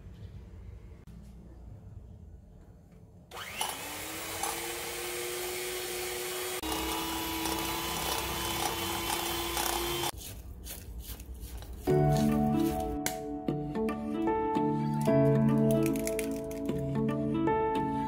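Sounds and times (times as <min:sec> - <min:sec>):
electric hand mixer whining: 0:03.3 - 0:10.1.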